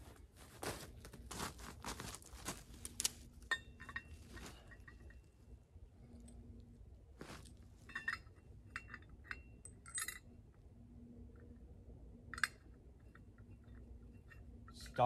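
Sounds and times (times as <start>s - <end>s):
steel hardware clinking: 2.8s - 5.4s, 7.2s - 10.6s, 11.3s - 15.0s.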